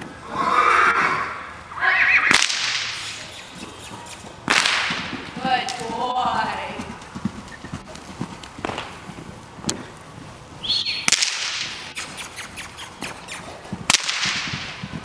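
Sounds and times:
loud sharp cracks: 0:02.3 - 0:03.4, 0:04.4 - 0:05.9, 0:11.0 - 0:12.2, 0:13.9 - 0:14.8
horse hoofbeats on soft ground: 0:03.5 - 0:10.6, 0:11.6 - 0:15.0.

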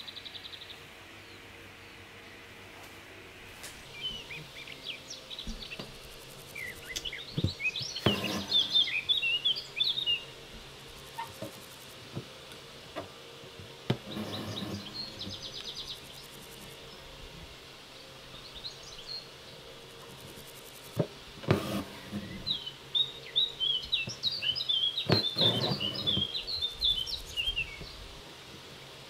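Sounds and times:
small birds chirping: 0:00.0 - 0:02.6, 0:03.8 - 0:12.6, 0:13.9 - 0:28.1
needle drawn through fabric: 0:08.0 - 0:08.9, 0:14.0 - 0:15.4, 0:21.4 - 0:22.5, 0:25.1 - 0:26.3.

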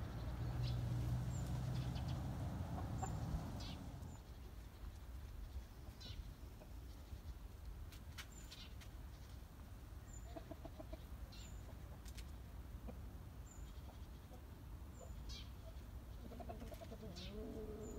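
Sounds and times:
small birds chirping: 0:00.0 - 0:17.9
chickens clucking: 0:00.5 - 0:04.2, 0:10.1 - 0:17.9.

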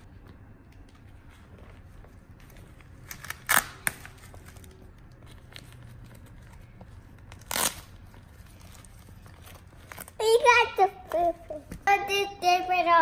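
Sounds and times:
diaper tabs ripping open: 0:03.0 - 0:06.1, 0:07.2 - 0:08.7.

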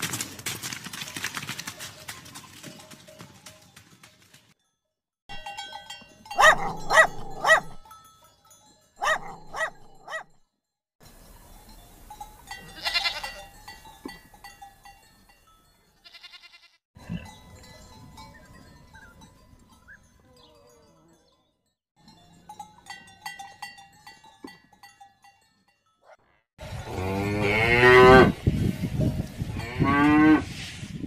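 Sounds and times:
goats bleating: 0:12.7 - 0:13.4, 0:16.0 - 0:16.8.

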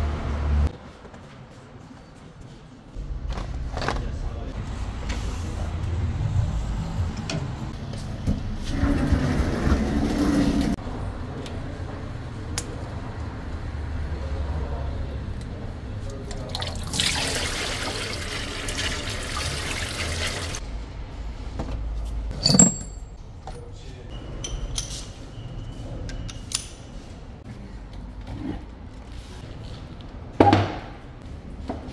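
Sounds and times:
oil pouring into drain: 0:16.3 - 0:20.6.

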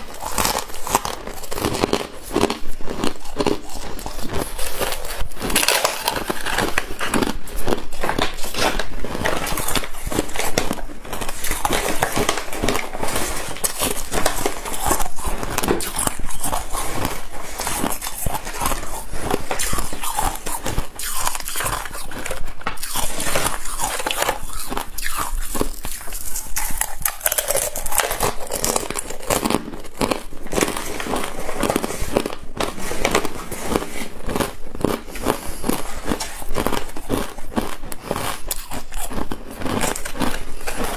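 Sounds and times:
person crunching ice: 0:00.0 - 0:40.9.

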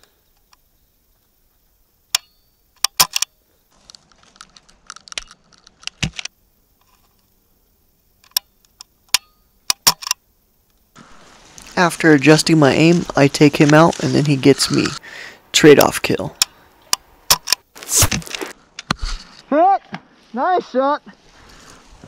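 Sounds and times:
rustle: 0:00.0 - 0:22.0
airsoft rifle mechanical clicks: 0:02.1 - 0:07.3, 0:08.2 - 0:10.9, 0:15.8 - 0:17.7.

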